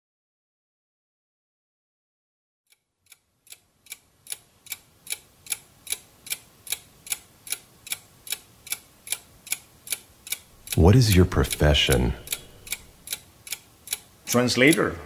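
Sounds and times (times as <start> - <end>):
steady mechanical ticking: 3.0 - 15.0.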